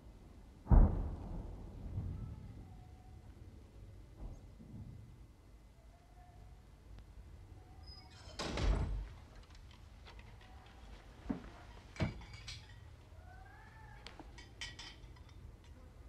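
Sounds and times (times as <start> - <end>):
door thuds: 8.4 - 9.2.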